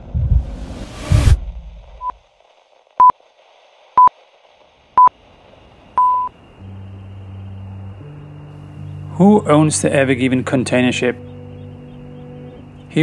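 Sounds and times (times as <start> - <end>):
electronic beep tones: 6.0 - 6.3
low steady drone: 6.3 - 13.0.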